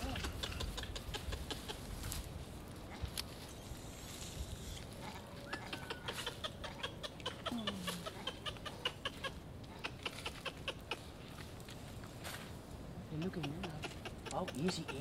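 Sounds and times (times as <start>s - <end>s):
bird clucking chatter: 0.0s - 2.2s, 4.6s - 11.5s, 13.1s - 15.0s.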